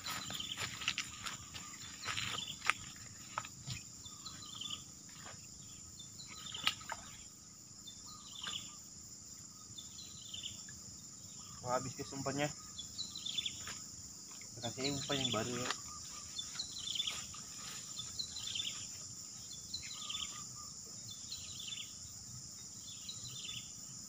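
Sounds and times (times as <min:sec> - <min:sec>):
footsteps through grass and mud: 0:00.0 - 0:05.6, 0:15.3 - 0:19.1
insects droning and chirping: 0:00.0 - 0:24.0.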